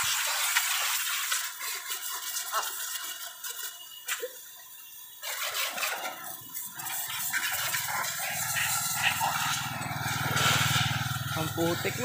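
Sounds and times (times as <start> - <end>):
water spraying and splashing: 0.0 - 12.0
motor humming: 6.7 - 12.0.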